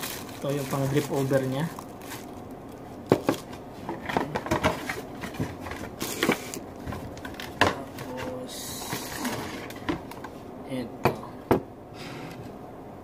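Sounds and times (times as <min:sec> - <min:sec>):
plastic wrap rustling: 0:00.0 - 0:10.3.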